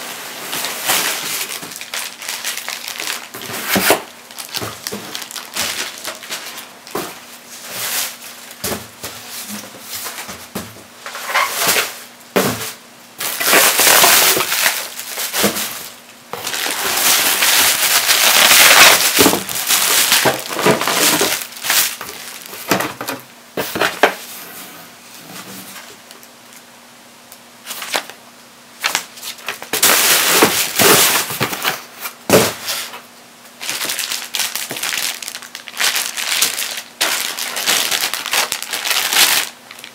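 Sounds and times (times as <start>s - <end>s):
plastic and paper crinkling: 0.3s - 10.3s, 13.2s - 23.2s, 28.8s - 39.9s.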